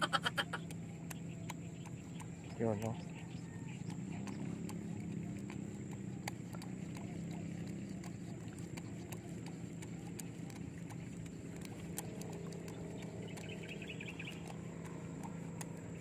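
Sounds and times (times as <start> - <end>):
low hum: 0.0 - 16.0
faint clicks: 0.4 - 3.0.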